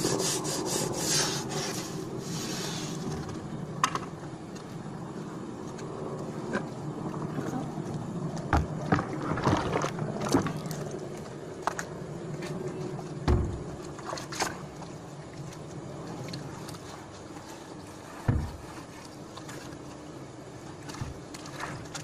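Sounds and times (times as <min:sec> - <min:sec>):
brush scrubbing wet concrete: 0:00.0 - 0:03.1.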